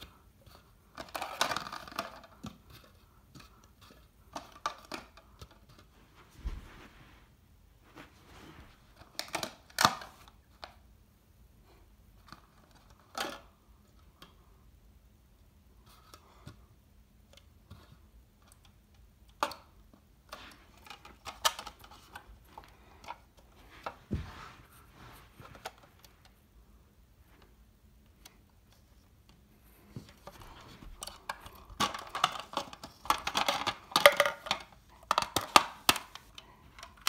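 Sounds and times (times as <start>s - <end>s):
plastic cups tapping and clicking: 31.0s - 37.0s.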